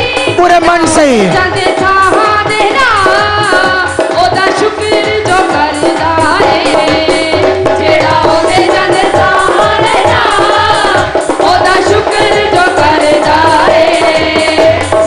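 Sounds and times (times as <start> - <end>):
women singing: 0.0 - 0.4, 1.3 - 15.0
steady drum beat: 0.0 - 15.0.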